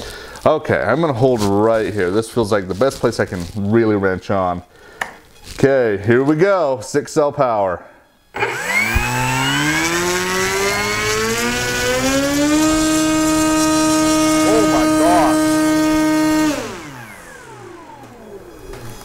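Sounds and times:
electric motor and propeller whine: 8.4 - 19.0.

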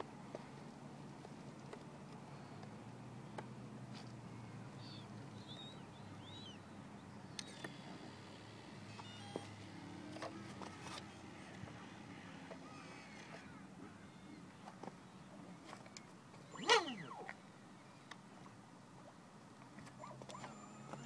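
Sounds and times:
steady low hum: 0.0 - 21.0
bird chirps: 4.8 - 6.7.

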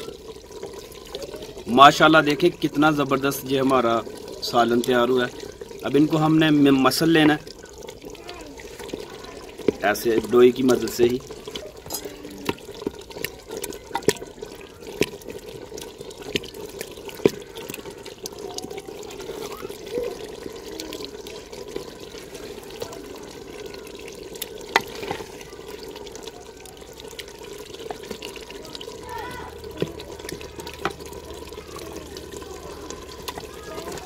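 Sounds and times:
wet squelching and bubbling: 0.0 - 34.0
wooden ladle knocking clay pot: 9.6 - 11.0, 24.7 - 25.3, 29.8 - 31.2.

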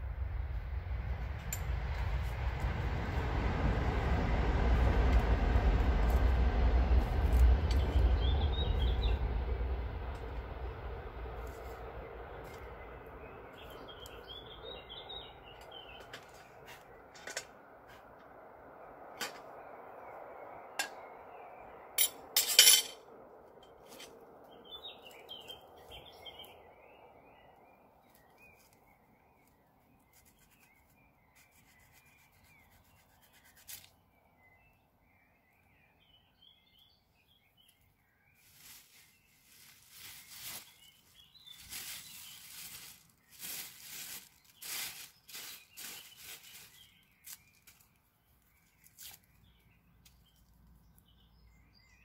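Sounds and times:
faint bird chirps: 23.7 - 52.0.

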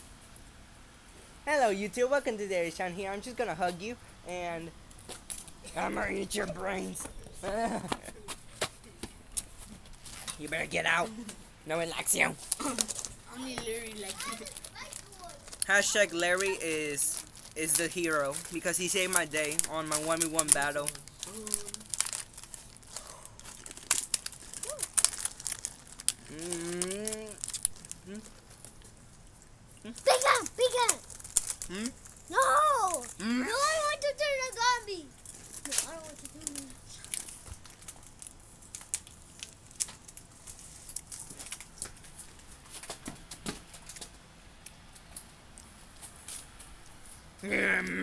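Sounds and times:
chip bag crinkling: 12.1 - 33.9, 35.1 - 43.0
chips crunching: 13.8 - 33.8, 35.2 - 42.9
person humming low moan: 26.2 - 27.4, 31.7 - 32.0, 33.2 - 33.5, 47.4 - 48.0.

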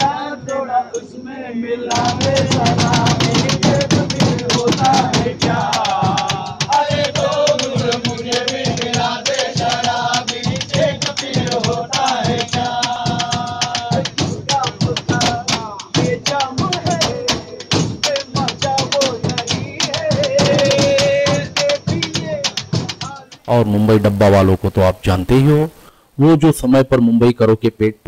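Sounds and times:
men singing together: 0.0 - 24.2
hands beating on metal: 1.9 - 23.5.

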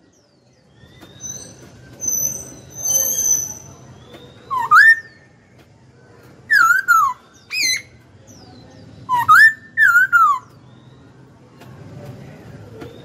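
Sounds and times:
laughingthrush whistling song: 0.8 - 5.3, 6.5 - 7.9, 9.0 - 11.1.

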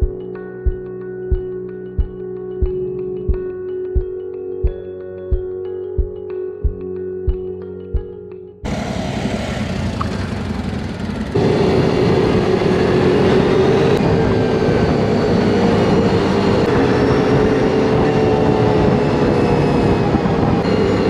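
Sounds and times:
quad bike engine droning: 8.7 - 21.0.

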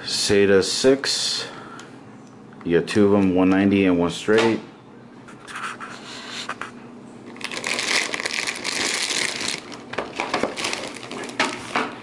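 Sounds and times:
plastic packaging crinkling: 7.2 - 12.0.

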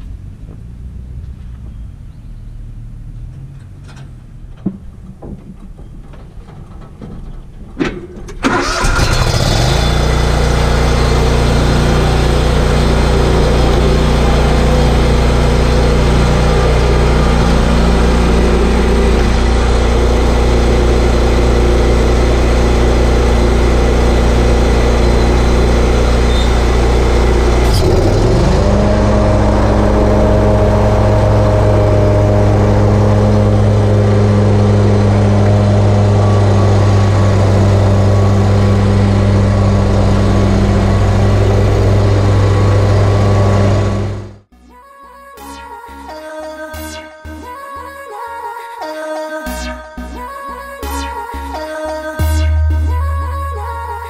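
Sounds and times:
mower engine running: 8.3 - 44.5.

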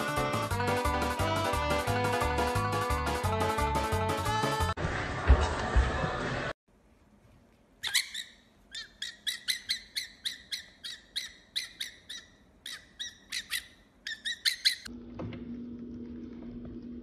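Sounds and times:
fox chirping calls: 7.8 - 14.9.

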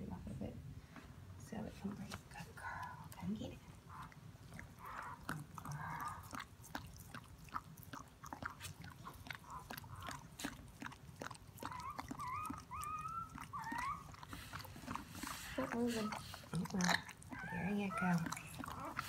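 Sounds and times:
dog licking with wet smacks: 1.9 - 19.0
puppy squeaking: 3.9 - 6.4, 11.3 - 19.0.

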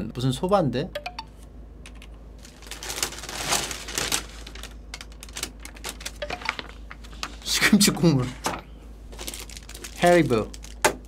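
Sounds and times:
plastic bags rustling: 2.4 - 8.4, 9.0 - 11.0.

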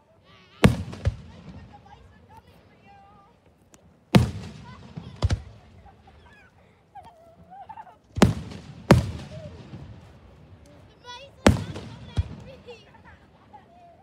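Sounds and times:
fireworks bangs with echo: 0.6 - 2.4, 4.1 - 6.1, 8.2 - 10.1, 11.4 - 12.8.

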